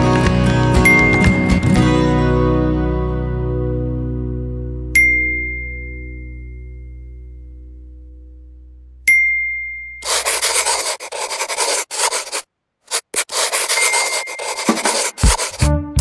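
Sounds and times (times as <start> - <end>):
music: 0.0 - 5.0, 15.2 - 16.0
marker scratching on paper: 10.0 - 15.7.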